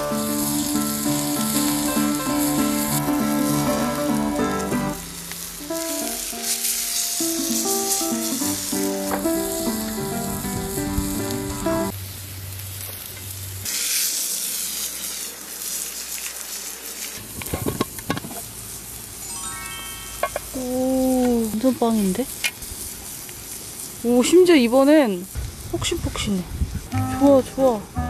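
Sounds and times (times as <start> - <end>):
background music: 0.0 - 6.5, 7.1 - 11.9, 19.2 - 20.6, 27.0 - 28.0
food sizzling in a pan: 0.0 - 28.0.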